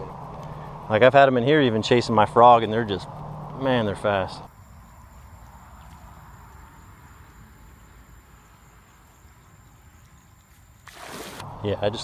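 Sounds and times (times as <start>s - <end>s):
low rumble: 0.0s - 4.5s
insects trilling: 0.0s - 12.0s.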